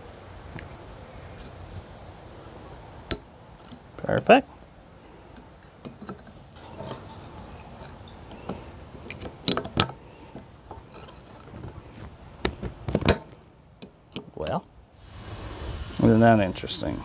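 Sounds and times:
pliers clicking and scraping metal: 5.3s - 11.6s.

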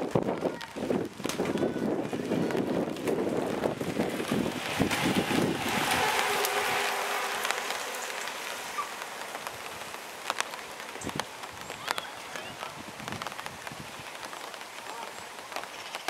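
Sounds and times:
bike tyres hissing on tarmac: 0.0s - 16.0s.

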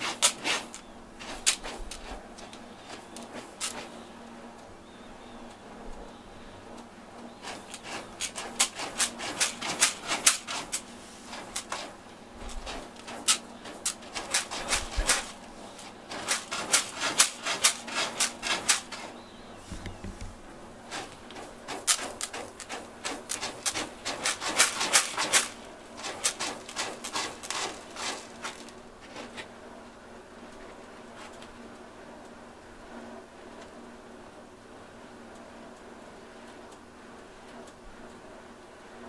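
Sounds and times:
cat scratching in litter: 0.0s - 4.1s, 7.3s - 29.5s.

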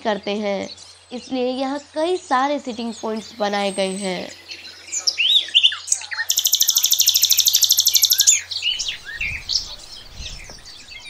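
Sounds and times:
small birds chirping: 0.0s - 11.0s
fast high bird trill: 2.9s - 11.0s.

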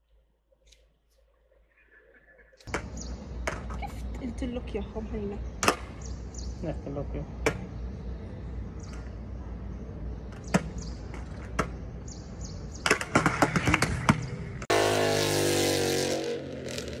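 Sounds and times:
roller skate wheels on stone: 10.1s - 14.7s, 16.3s - 17.0s.

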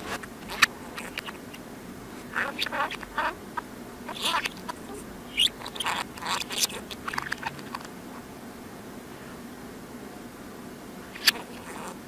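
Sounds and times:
reversed budgerigar chattering: 0.4s - 1.6s, 2.2s - 7.9s, 11.1s - 12.0s.

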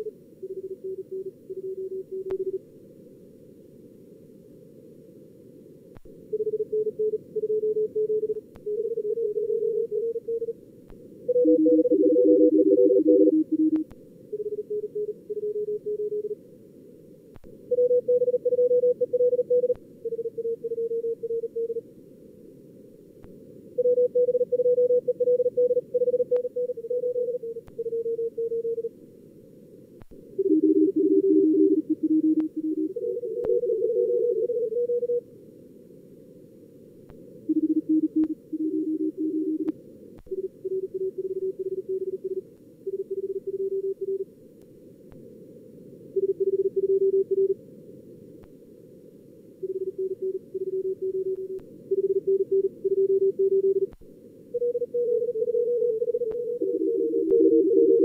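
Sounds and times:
morse code tones: 11.3s - 13.8s, 17.7s - 21.8s, 23.8s - 28.9s, 30.4s - 35.2s, 54.6s - 58.0s.

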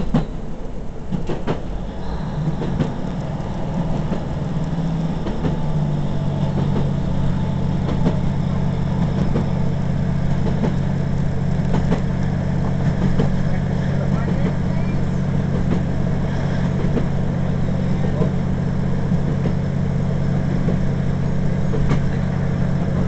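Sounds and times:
train engine low drone: 0.0s - 23.0s
wheels clicking on rails: 0.0s - 23.0s.

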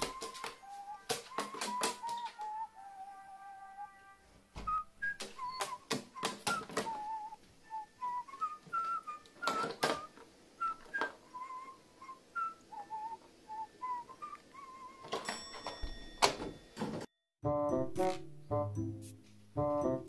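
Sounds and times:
plastic toy clacking and knocking: 0.0s - 2.3s, 5.2s - 7.0s, 9.4s - 10.2s
wavering whistle-like squeaks: 0.0s - 4.0s, 4.6s - 15.3s.

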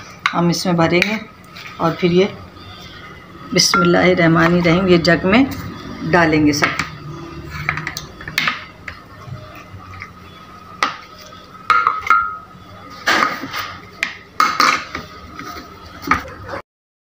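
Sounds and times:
glass blender jar clinking and knocking: 11.7s - 12.4s.

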